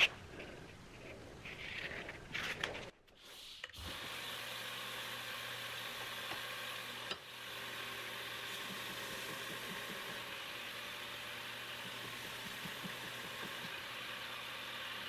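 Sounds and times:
belt grinder running: 3.8 - 15.0.

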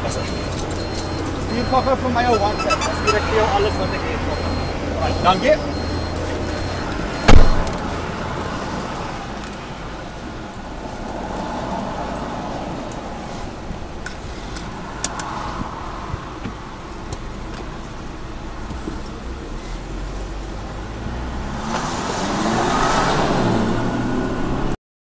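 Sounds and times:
engine and road noise in cabin: 0.0 - 24.8
engine revving: 20.8 - 24.8.

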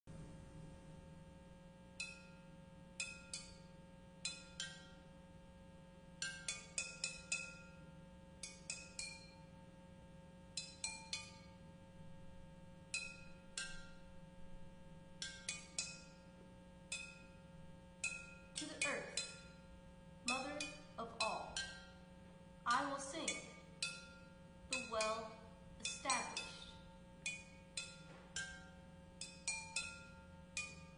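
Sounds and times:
clay pots struck with sticks: 6.2 - 9.6, 10.5 - 22.1, 22.8 - 30.9.

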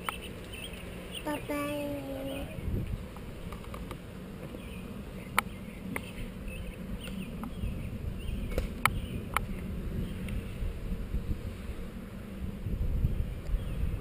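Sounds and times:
wind rumble on microphone: 0.0 - 14.0.

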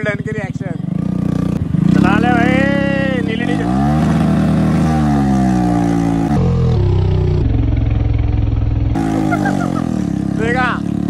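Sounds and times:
motorcycle exhaust: 0.0 - 11.0.

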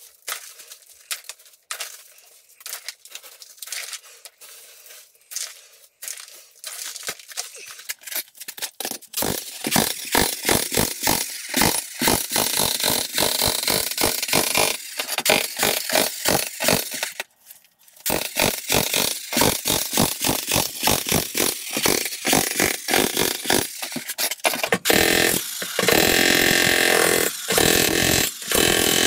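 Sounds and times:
jackhammer breaking concrete: 8.8 - 17.2, 18.0 - 29.0.

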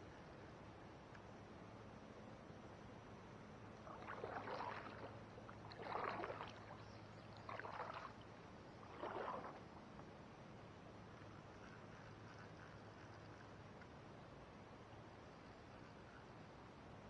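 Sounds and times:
kayak paddle splashes: 3.8 - 9.9.

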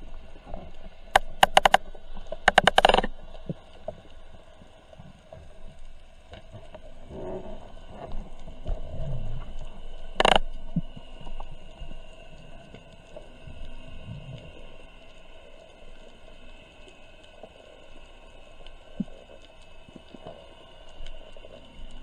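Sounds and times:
muffled underwater water wash: 0.0 - 22.0
sharp underwater clicks: 1.0 - 3.8, 9.5 - 11.4.

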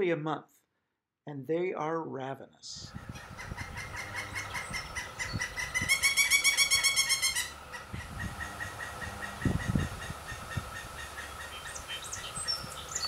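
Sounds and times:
woodpecker nestlings begging chatter: 3.0 - 13.0.

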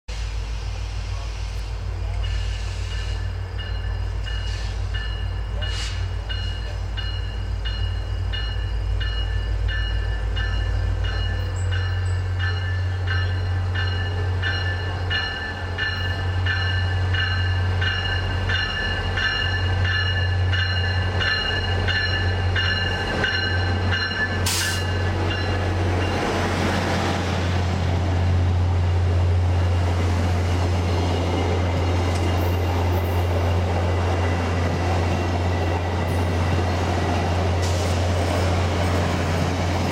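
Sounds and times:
diesel locomotive engine drone: 0.1 - 39.9
rolling rumble of train cars: 0.1 - 39.9
locomotive bell ringing: 2.2 - 26.5.

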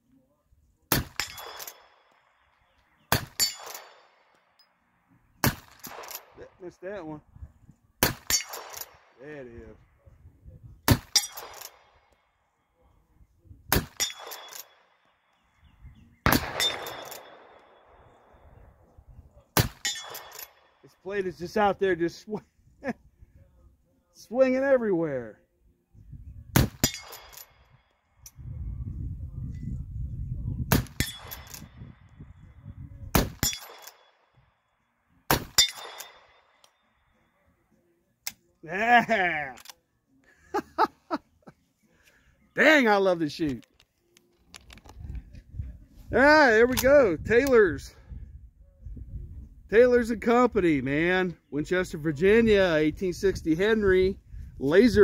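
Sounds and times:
bullets hitting steel plates: 0.9 - 2.4, 3.1 - 4.6, 8.0 - 9.2, 10.9 - 12.1, 13.7 - 15.0, 16.3 - 17.9, 19.6 - 20.8, 26.6 - 27.8, 30.7 - 31.8, 33.2 - 34.3, 35.3 - 36.8
rifle shots: 0.9 - 4.3, 5.4 - 6.4, 8.0 - 9.2, 16.2 - 18.6, 33.1 - 34.3, 35.3 - 36.7.

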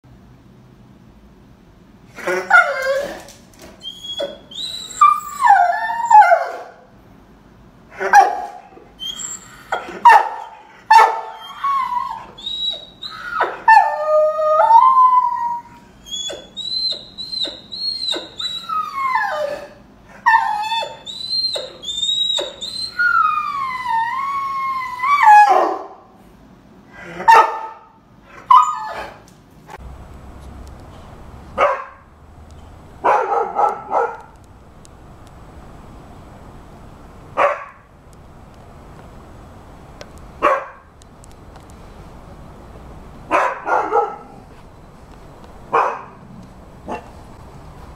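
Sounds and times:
dog barking: 8.0 - 8.7, 10.0 - 11.4, 27.2 - 28.6, 31.6 - 32.0, 33.0 - 34.4, 37.4 - 37.8, 40.4 - 40.9, 43.3 - 44.4, 45.7 - 46.2
dog howling: 9.0 - 25.8.

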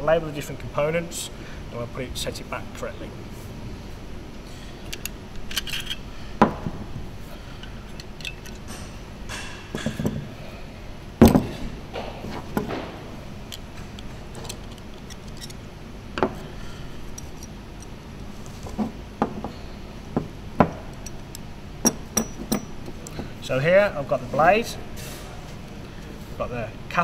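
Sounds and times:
metal parts clinking: 4.9 - 6.0, 7.6 - 9.0.

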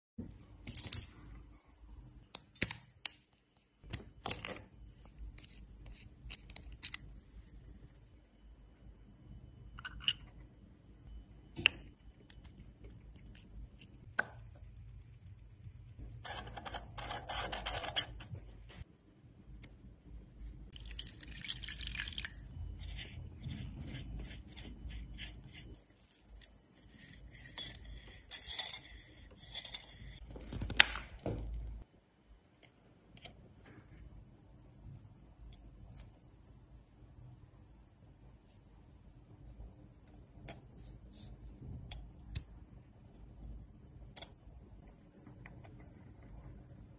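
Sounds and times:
liquid pouring into glass dish: 20.7 - 22.4.

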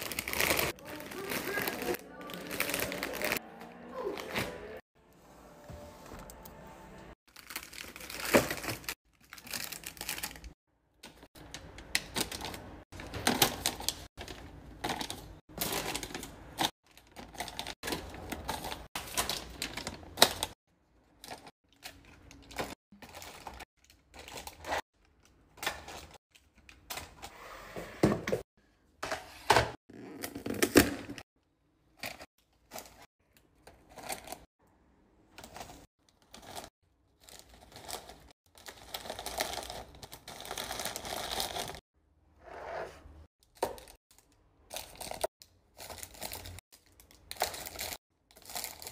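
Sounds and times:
snack packets crinkling: 0.0 - 3.4, 7.3 - 24.6, 35.4 - 41.8, 43.4 - 48.9.

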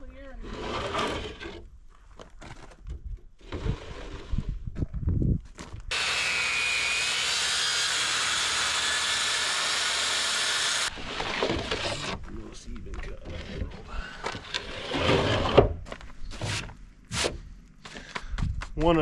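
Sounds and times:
knocks and scraping: 0.4 - 5.9, 10.9 - 19.0
circular saw cutting: 5.9 - 12.2.

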